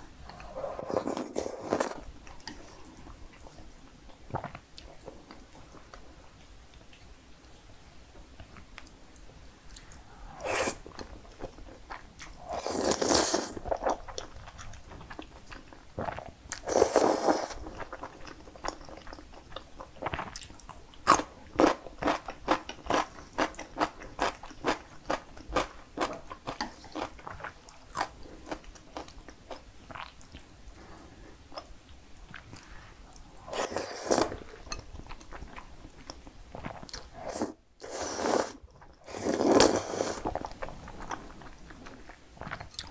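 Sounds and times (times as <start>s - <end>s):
wet slurps of noodles: 10.4s - 10.8s, 12.5s - 13.6s, 16.7s - 17.6s, 33.5s - 34.4s, 37.2s - 40.3s
chewing with moist mouth clicks: 22.0s - 30.6s.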